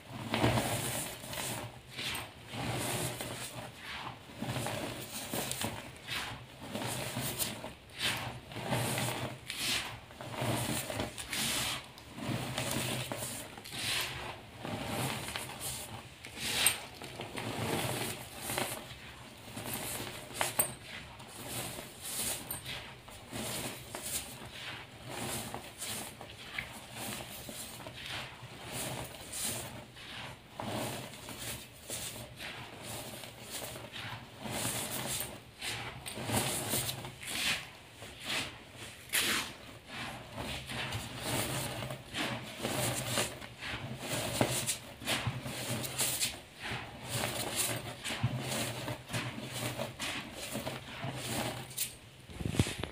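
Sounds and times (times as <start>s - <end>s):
chalk powder crunching: 0.1s - 52.9s.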